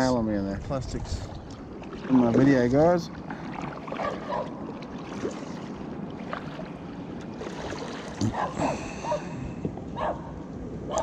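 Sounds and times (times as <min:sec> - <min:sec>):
wind on microphone: 0:00.5 - 0:01.8
water splashing around kayak: 0:00.9 - 0:09.8.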